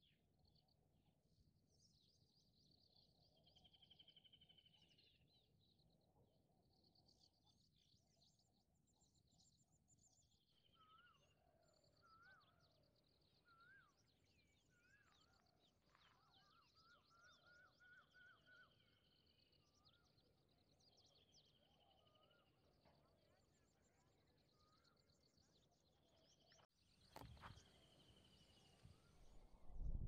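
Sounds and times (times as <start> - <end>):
small birds chirping: 7.0 - 30.0
whistled bird notes: 12.0 - 12.7, 13.4 - 15.4, 16.0 - 20.2.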